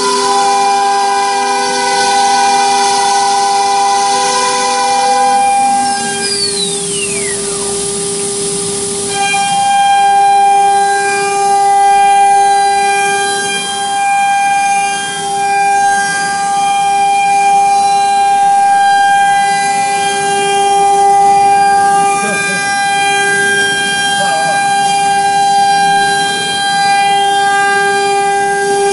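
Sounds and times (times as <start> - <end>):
router spindle whining: 0.0 - 28.9
falling tone: 3.4 - 10.4.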